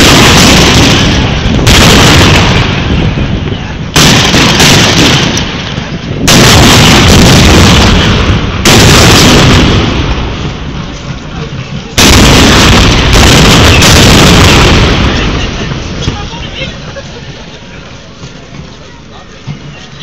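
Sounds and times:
cannon booms: 0.0s - 3.4s, 4.0s - 10.5s, 12.0s - 16.2s.

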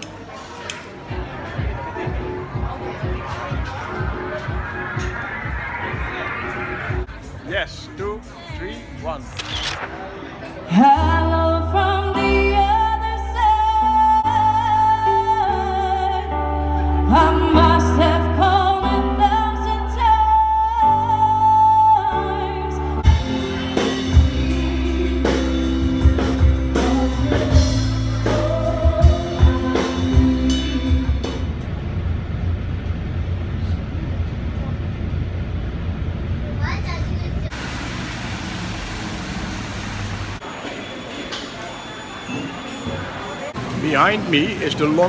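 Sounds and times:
live band playing: 9.2s - 31.6s
woman singing with vibrato: 10.7s - 23.2s, 23.8s - 25.8s, 26.6s - 31.3s.

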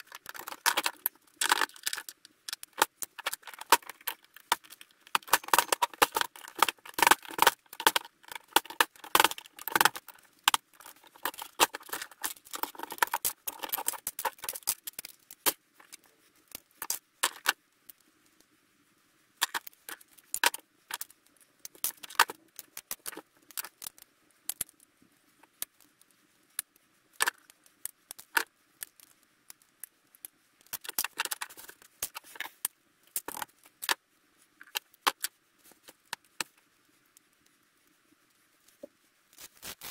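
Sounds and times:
small metal parts clinking: 0.0s - 15.1s.

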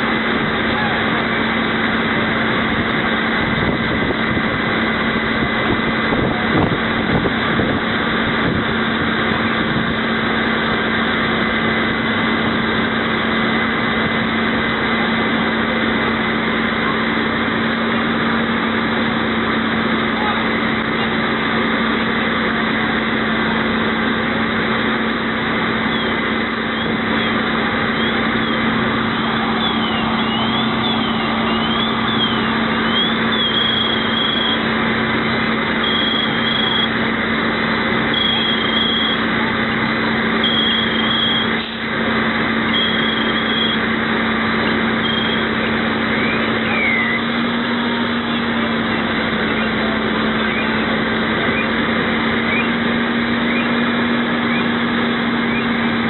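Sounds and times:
fire engine motor droning: 0.0s - 56.0s
wavering electronic siren tone: 25.8s - 34.7s, 35.8s - 37.0s, 38.1s - 39.3s, 40.4s - 41.6s, 42.6s - 43.9s, 44.7s - 47.6s, 48.2s - 51.8s
high beeps: 25.9s - 34.7s, 35.8s - 37.0s, 38.1s - 39.3s, 40.4s - 41.6s, 42.7s - 43.8s, 45.0s - 45.5s.

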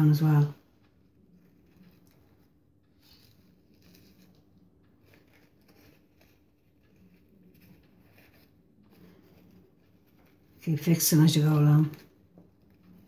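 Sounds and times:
low steady hum: 0.0s - 13.0s
paper rustling: 3.0s - 10.6s.

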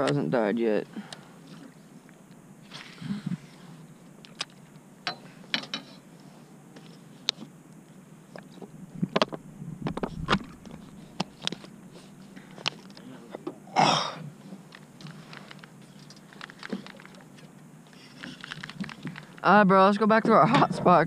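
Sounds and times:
plastic bag and bottle handling clicks: 15.3s - 17.3s.

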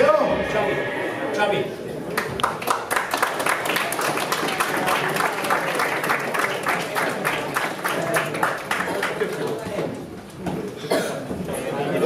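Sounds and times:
crowd applause: 2.1s - 10.1s.

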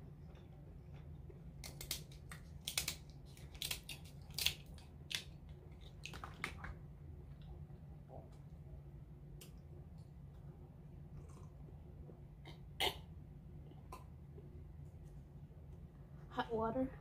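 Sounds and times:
scissors snipping crab shell: 1.6s - 5.2s.

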